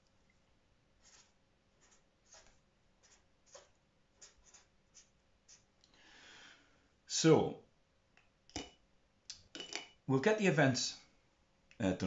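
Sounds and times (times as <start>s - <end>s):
marker squeaking on paper: 1.0s - 5.7s.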